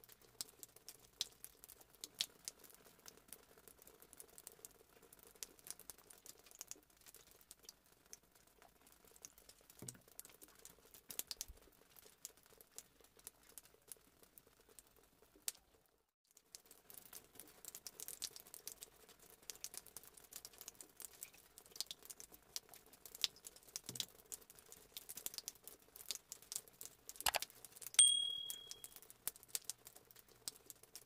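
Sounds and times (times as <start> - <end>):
click and bell ding effect: 28.0 - 28.9.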